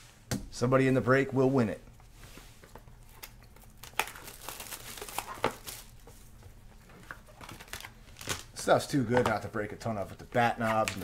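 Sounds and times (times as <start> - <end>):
plastic wrap tearing and crumpling: 3.0 - 6.1, 7.0 - 8.6.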